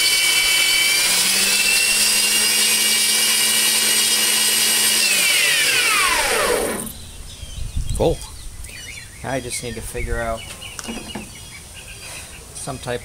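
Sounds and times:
motor winding down: 0:00.0 - 0:07.1
bandsaw motor whine: 0:00.0 - 0:07.2.

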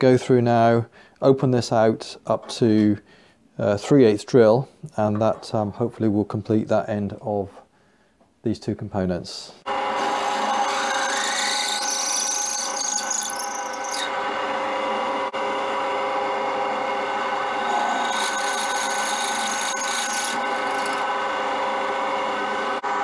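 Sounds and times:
drill press motor hum: 0:09.7 - 0:23.0
high scraping squeal: 0:10.0 - 0:21.2.

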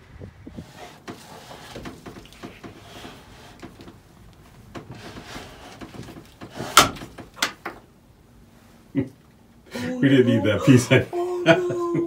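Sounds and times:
hands knocking and scraping wood: 0:00.6 - 0:07.9.

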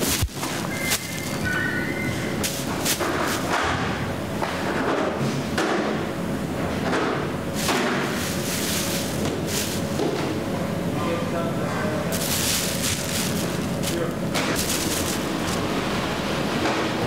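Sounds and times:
plastic bags rustling and crinkling: 0:00.0 - 0:03.6, 0:07.5 - 0:10.3, 0:11.9 - 0:16.1
steady hum: 0:00.0 - 0:17.0.

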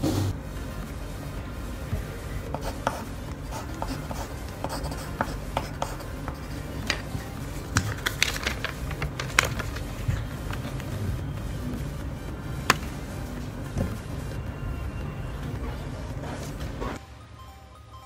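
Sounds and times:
steady low hum: 0:00.0 - 0:17.9
pencil scratching on paper: 0:02.5 - 0:07.8.

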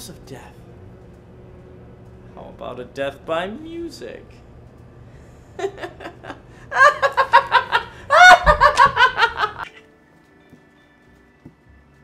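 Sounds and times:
man laughing loudly: 0:05.6 - 0:09.7.

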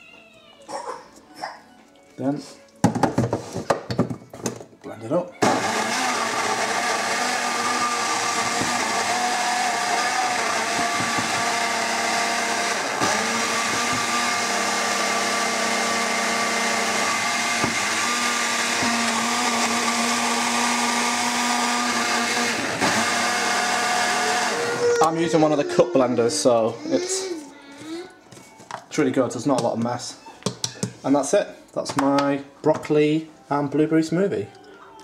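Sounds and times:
blender motor whine: 0:05.4 - 0:26.1.

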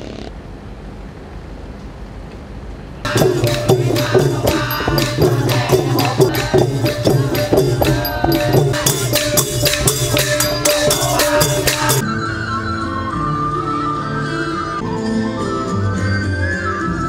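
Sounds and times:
small cymbals and hand percussion: 0:03.1 - 0:12.0.

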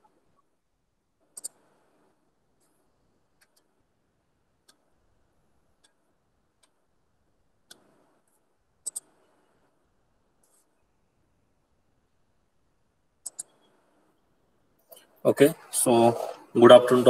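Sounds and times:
computer mouse clicks: 0:01.2 - 0:02.0, 0:02.6 - 0:03.8, 0:05.8 - 0:06.8, 0:07.6 - 0:09.7, 0:13.2 - 0:13.9.

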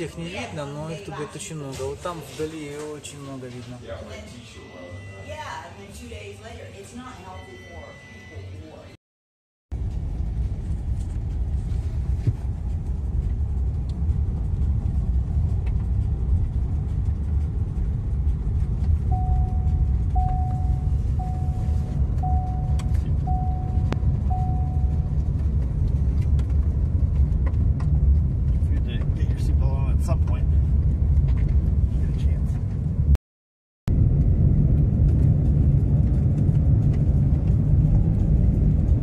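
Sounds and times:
short beeps: 0:04.4 - 0:05.6, 0:07.2 - 0:08.7, 0:19.1 - 0:25.2
vehicle driving on gravel: 0:09.7 - 0:33.1, 0:33.9 - 0:39.0.

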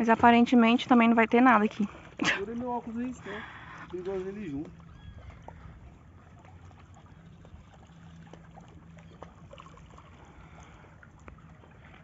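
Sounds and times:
low steady hum: 0:00.0 - 0:12.0
water lapping and trickling: 0:00.0 - 0:12.0
water ticks and drips: 0:06.2 - 0:12.0.

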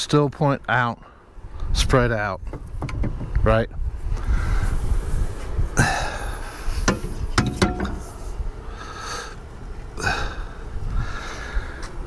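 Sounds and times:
wind rumble on microphone: 0:01.4 - 0:12.0
metal knocks and clinks: 0:07.4 - 0:08.0.

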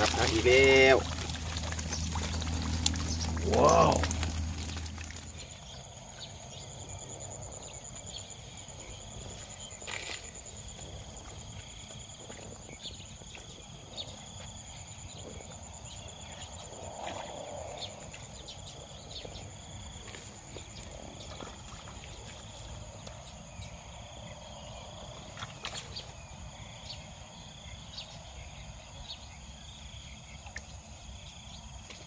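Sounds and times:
insect trilling call: 0:00.0 - 0:19.6
insects high-pitched whine: 0:00.0 - 0:32.0.

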